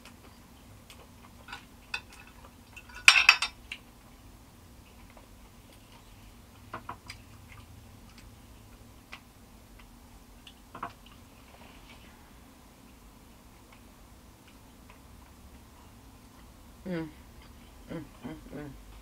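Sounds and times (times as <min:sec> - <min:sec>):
tableware clinking: 0:01.5 - 0:03.6.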